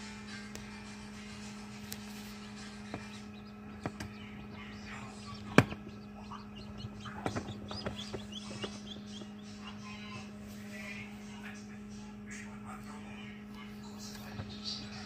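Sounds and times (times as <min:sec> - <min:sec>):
incubator humming: 0:00.0 - 0:15.0
chick peeping: 0:02.0 - 0:10.4
taps and knocks: 0:02.9 - 0:04.2, 0:05.4 - 0:06.0, 0:06.6 - 0:09.4.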